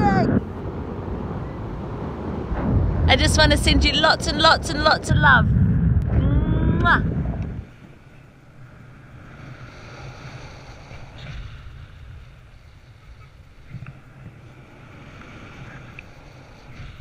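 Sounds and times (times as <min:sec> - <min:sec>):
wind buffeting microphone: 0:00.0 - 0:08.3.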